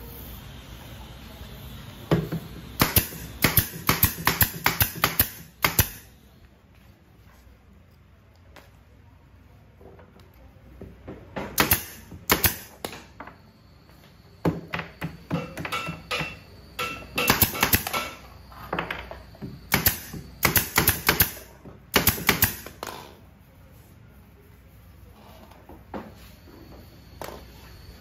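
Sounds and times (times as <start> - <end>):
hammer nailing into wood: 2.8 - 6.0, 11.4 - 12.8, 15.3 - 18.2, 19.7 - 22.7.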